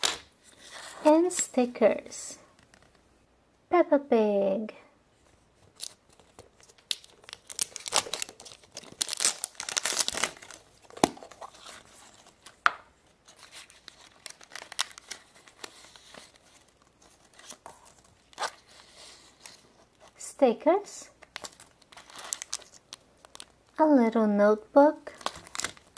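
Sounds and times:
plastic packaging crinkling and tearing: 0:05.6 - 0:12.6, 0:13.2 - 0:20.2, 0:21.2 - 0:23.8, 0:25.0 - 0:25.9.

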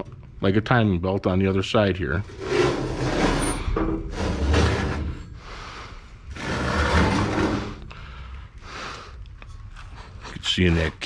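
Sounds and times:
chainsaw scraping on steel workbench: 0:02.3 - 0:05.4, 0:06.3 - 0:07.9.

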